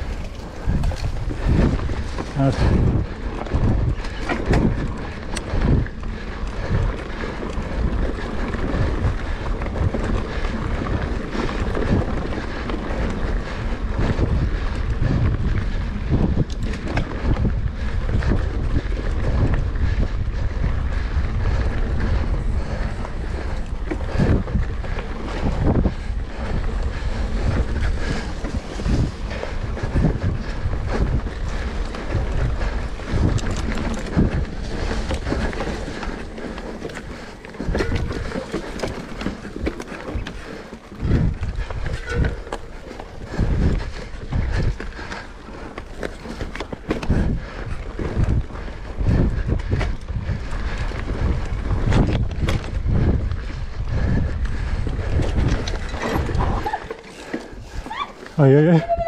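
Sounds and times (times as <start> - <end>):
wind buffeting microphone: 0.0 - 59.0.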